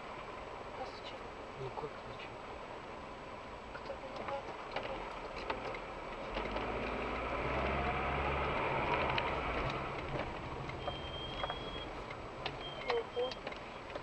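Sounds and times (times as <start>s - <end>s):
car engine pulling away: 4.8s - 14.0s.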